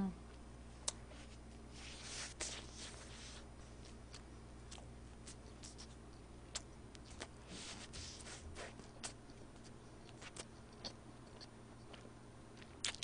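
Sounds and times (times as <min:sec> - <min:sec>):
low steady hum: 0:00.0 - 0:13.0
paper napkin rustling: 0:01.2 - 0:03.5.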